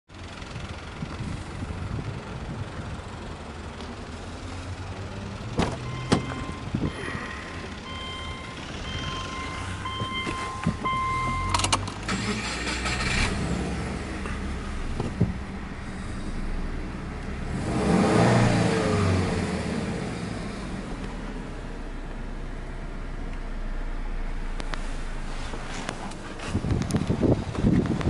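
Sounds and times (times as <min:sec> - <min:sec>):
steady low rumble: 0:00.3 - 0:04.6, 0:05.8 - 0:28.0
high-pitched warning chime beeping: 0:05.8 - 0:11.7
ignition key clicks: 0:09.9 - 0:13.0.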